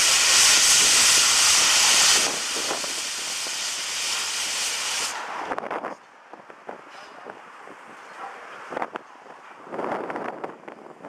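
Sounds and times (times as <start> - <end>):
steam locomotive hissing: 0.0 - 5.6.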